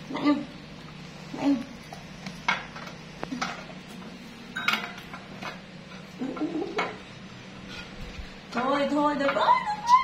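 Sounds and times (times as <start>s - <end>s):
spoon clinking against dish: 4.6s - 5.1s.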